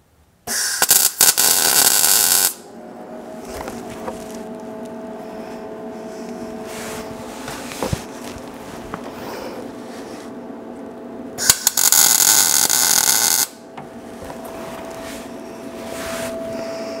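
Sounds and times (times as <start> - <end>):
steady hum with held tones: 0.0 - 17.0
welding arc crackling: 0.5 - 2.7, 11.4 - 13.6.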